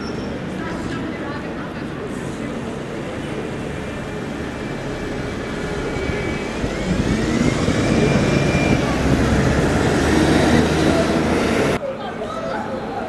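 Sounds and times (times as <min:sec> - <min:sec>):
bus passing: 0:00.0 - 0:11.8
drivetrain whine: 0:03.8 - 0:11.8.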